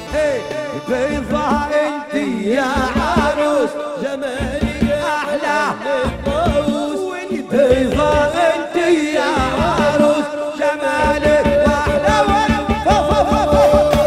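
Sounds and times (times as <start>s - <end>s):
steady drum beats: 0.0s - 14.0s.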